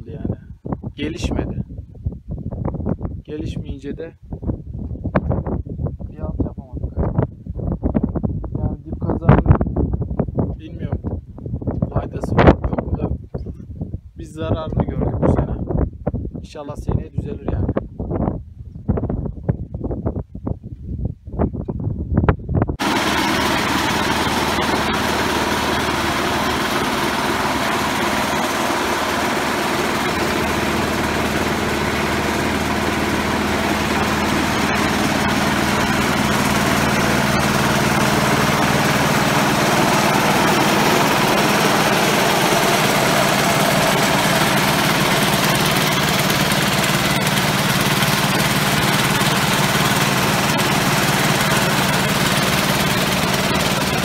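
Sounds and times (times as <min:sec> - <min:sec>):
small engines humming: 0:22.8 - 0:54.0.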